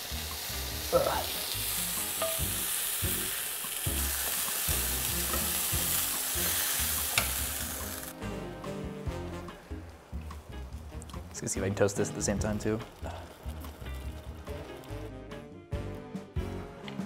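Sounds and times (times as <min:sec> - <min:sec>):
steak sizzling in a skillet: 0:00.0 - 0:15.1
tongs clicking against pan: 0:02.2 - 0:02.6, 0:07.0 - 0:07.5.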